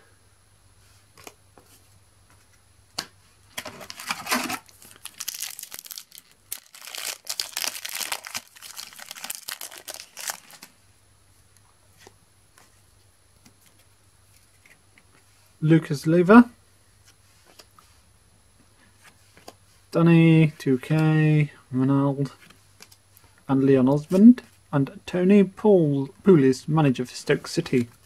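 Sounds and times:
foil packet crinkling and tearing: 0:03.6 - 0:10.8.

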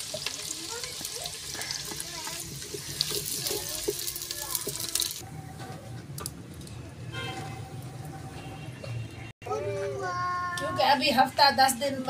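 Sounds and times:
onions sizzling in hot oil: 0:00.0 - 0:05.2
wooden spoon scraping pot: 0:01.4 - 0:05.2.

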